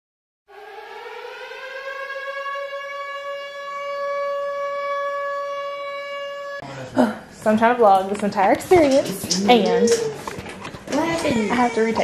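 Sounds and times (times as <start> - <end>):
air-raid siren wailing: 0.5 - 6.6.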